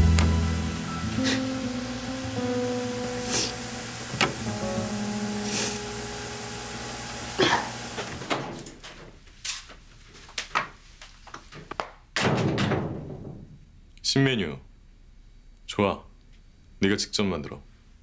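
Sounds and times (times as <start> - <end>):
steady hiss: 0.0 - 11.8
door being shut: 4.1 - 4.5, 7.5 - 9.2, 12.2 - 13.6
loud thud: 12.2 - 13.6.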